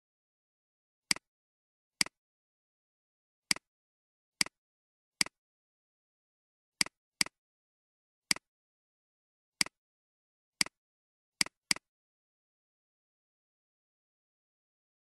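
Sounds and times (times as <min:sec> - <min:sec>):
computer mouse clicks: 0:10.6 - 0:10.8, 0:11.4 - 0:11.9.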